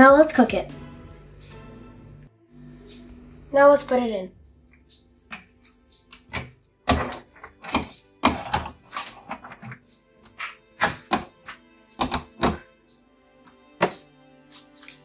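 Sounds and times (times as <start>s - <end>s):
metal skewers clicking and knocking: 4.9s - 12.6s.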